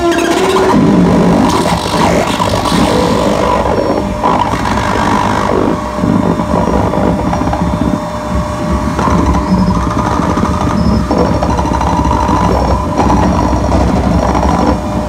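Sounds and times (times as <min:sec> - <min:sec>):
grinding electronic noise: 0:00.0 - 0:15.0
held buzzing tones: 0:00.0 - 0:15.0
low rumble: 0:00.0 - 0:15.0.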